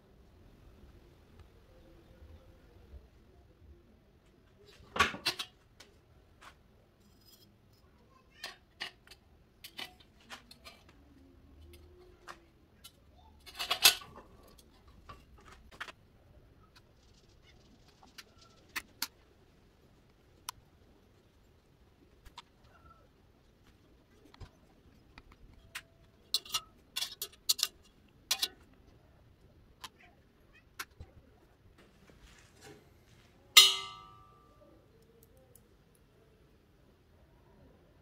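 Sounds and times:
metal workpiece clicks and knocks: 0:04.9 - 0:05.6, 0:08.4 - 0:10.9, 0:11.7 - 0:15.9, 0:25.1 - 0:28.7, 0:33.6 - 0:34.4.

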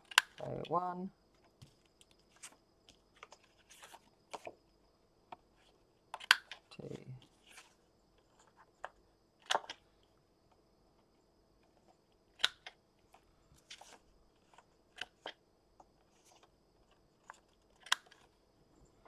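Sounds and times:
paper handling: 0:01.7 - 0:04.5.

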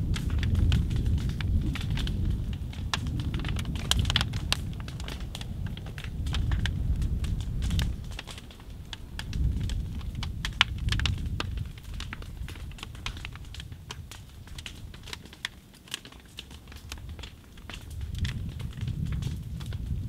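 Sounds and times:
low rumble: 0:00.0 - 0:13.4
fire crackling and popping: 0:00.0 - 0:20.0.

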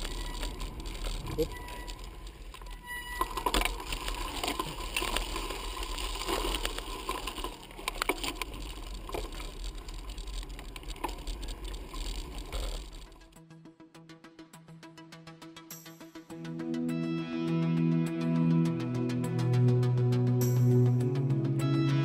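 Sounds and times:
bicycle rattling on gravel: 0:00.0 - 0:13.4
steady low rumble: 0:00.0 - 0:13.4.

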